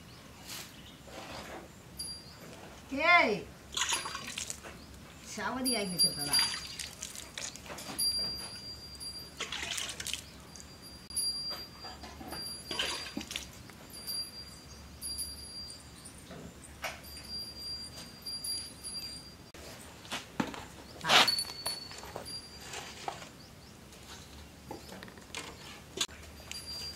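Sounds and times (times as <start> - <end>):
cowbell tinkling: 2.0 - 2.5, 5.6 - 7.0, 7.7 - 19.5, 21.0 - 23.0, 26.1 - 26.9
milk squirting: 6.6 - 7.7.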